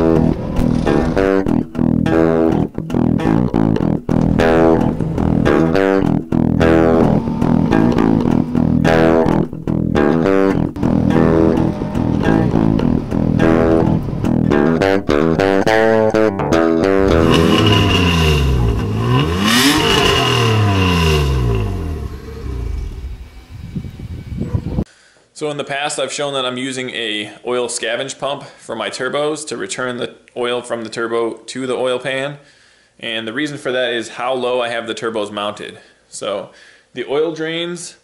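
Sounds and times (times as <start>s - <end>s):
guitar and bass music: 0.0s - 24.8s.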